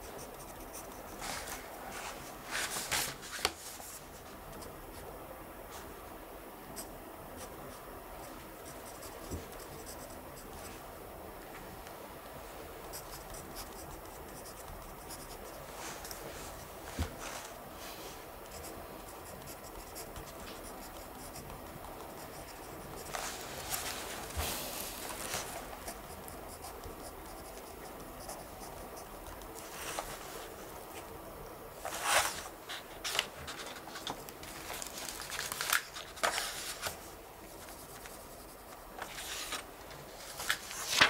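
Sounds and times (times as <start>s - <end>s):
pen scratching on paper: 0.0s - 1.2s, 12.9s - 15.6s, 18.5s - 23.4s, 25.5s - 29.3s
room tone: 0.0s - 41.0s.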